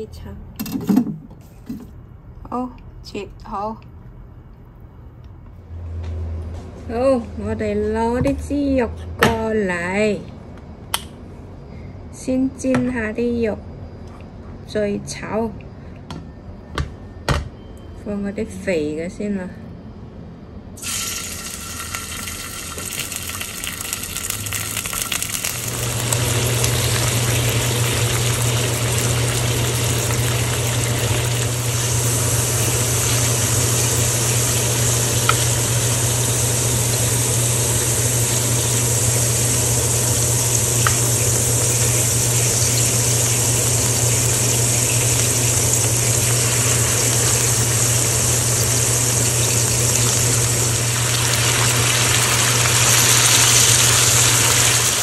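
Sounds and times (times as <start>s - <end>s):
pork sizzling in hot oil: 20.8s - 55.0s
steady low hum: 25.5s - 55.0s.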